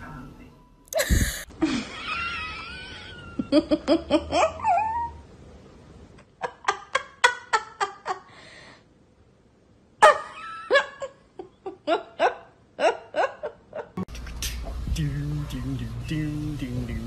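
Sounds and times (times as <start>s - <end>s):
dog yelping whines: 4.6s - 5.2s.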